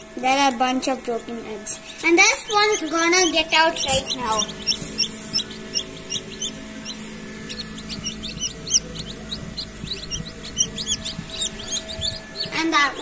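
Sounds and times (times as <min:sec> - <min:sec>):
low hum: 0:00.0 - 0:13.0
chicks peeping: 0:01.7 - 0:13.0.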